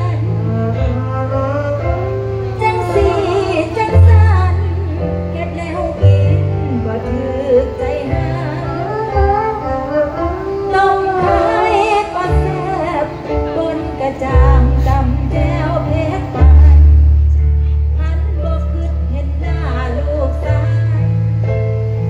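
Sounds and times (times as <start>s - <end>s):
musical accompaniment with deep bass: 0.0s - 22.0s.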